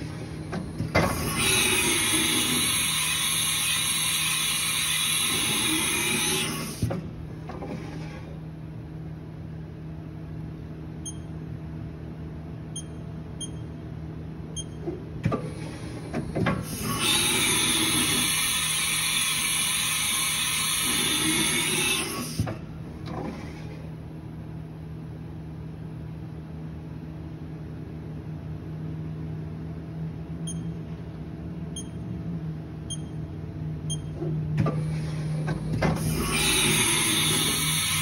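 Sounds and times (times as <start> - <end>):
loud hissing machine noise: 1.2 - 6.8, 16.7 - 22.4, 36.0 - 38.0
steady low machine hum: 6.9 - 17.0, 22.5 - 37.8.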